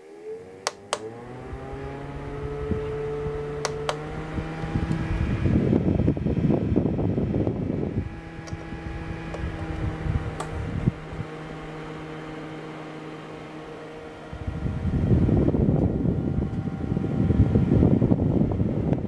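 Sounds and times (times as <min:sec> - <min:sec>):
air cooler motor hum: 0:00.0 - 0:19.0
single click: 0:00.7 - 0:01.1.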